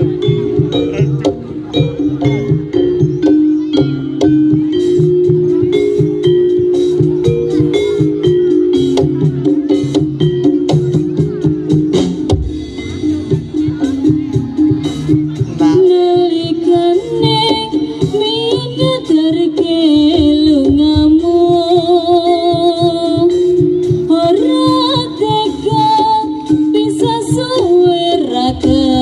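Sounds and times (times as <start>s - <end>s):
high wavering melody: 0.0s - 28.5s
drum strokes: 0.0s - 29.0s.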